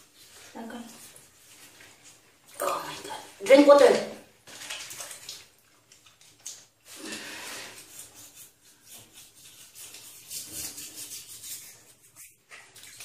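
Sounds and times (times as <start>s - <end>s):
toothbrush scrubbing teeth: 6.6s - 13.0s.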